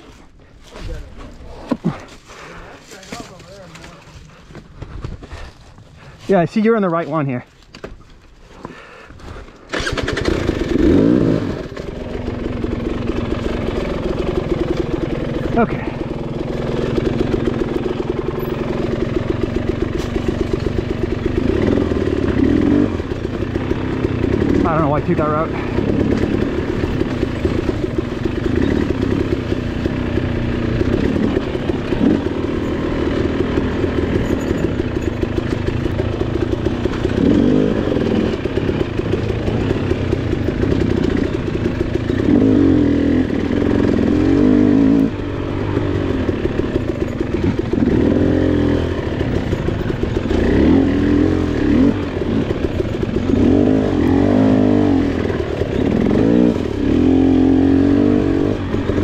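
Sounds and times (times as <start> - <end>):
two-stroke dirt bike engine revving: 9.7 - 59.0.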